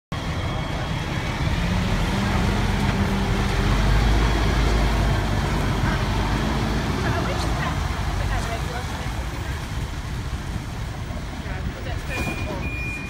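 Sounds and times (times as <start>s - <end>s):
truck diesel engine rumbling: 0.1s - 13.0s.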